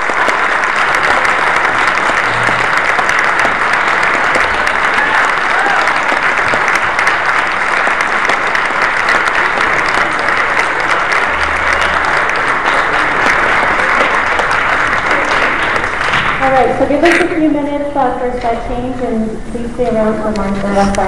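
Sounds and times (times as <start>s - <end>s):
audience applauding: 0.0s - 17.5s.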